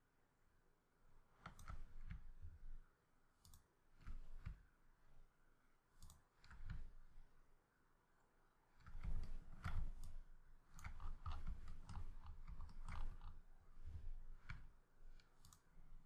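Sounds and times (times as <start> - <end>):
computer mouse clicking: 1.3 - 4.7, 6.0 - 7.4, 8.7 - 16.0.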